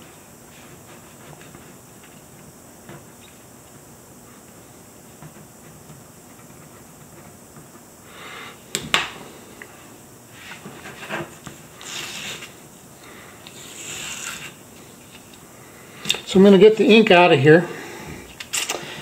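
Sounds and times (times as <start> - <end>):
tape peeling off paper: 10.4 - 12.6, 13.5 - 15.4.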